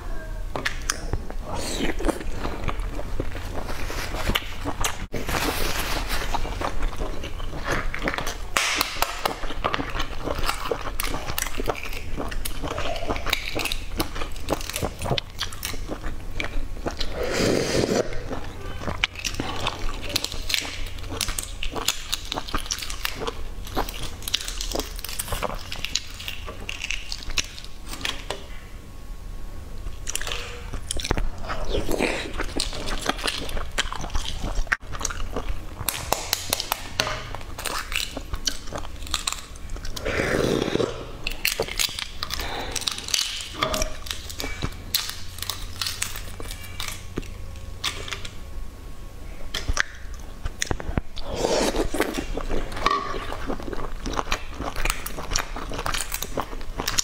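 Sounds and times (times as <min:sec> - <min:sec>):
eggshells cracking: 0:30.1 - 0:48.3.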